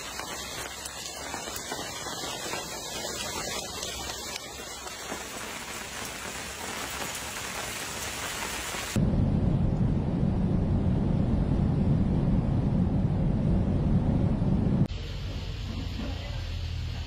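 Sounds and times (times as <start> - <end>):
ash and cinders pattering on pavement: 0.0 - 9.0.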